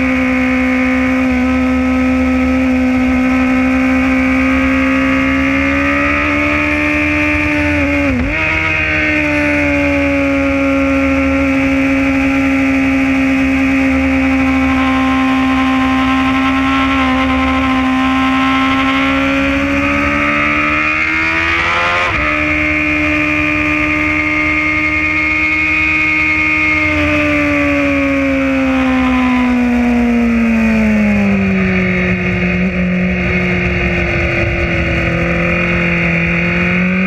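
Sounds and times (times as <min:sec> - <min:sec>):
motorcycle engine: 0:00.0 - 0:37.0.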